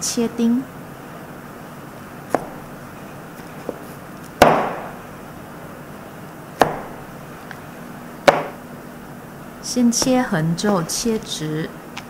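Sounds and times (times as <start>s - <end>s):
knife striking cutting board: 2.3s - 2.6s, 4.4s - 5.0s, 6.6s - 7.0s, 8.3s - 8.6s.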